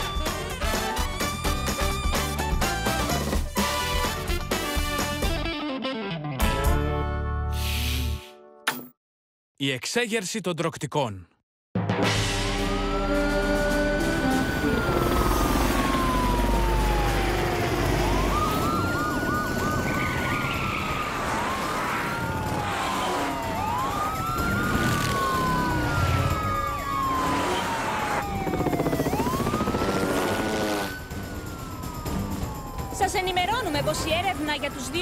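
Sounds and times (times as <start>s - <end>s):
police sirens wailing: 12.5s - 35.0s.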